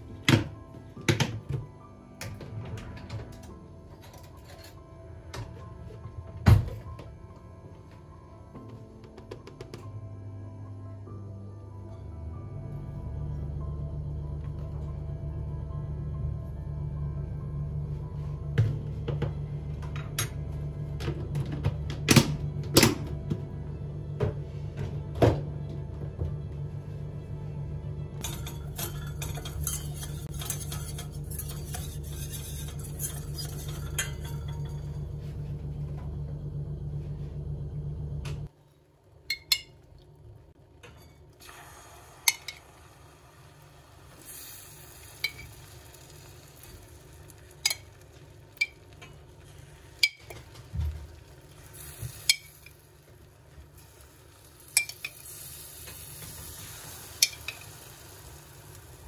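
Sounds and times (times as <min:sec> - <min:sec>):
low hum: 0:09.9 - 0:57.3
utensil scraping a pan: 0:28.3 - 0:34.5
food frying sizzle: 0:41.4 - 0:59.0.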